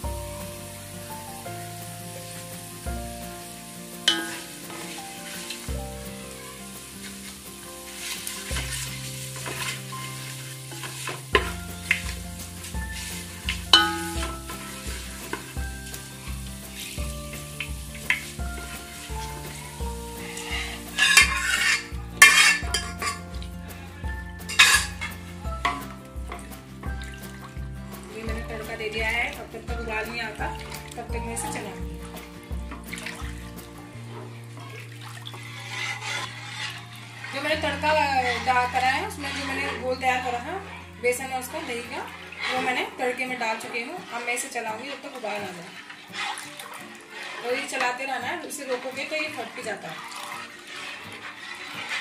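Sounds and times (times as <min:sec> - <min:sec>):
spices sizzling in hot oil: 0:00.0 - 0:52.0
wooden spatula knocking pot: 0:10.8 - 0:23.5, 0:24.4 - 0:27.7
batter sputtering in oil: 0:35.3 - 0:39.8, 0:48.6 - 0:52.0.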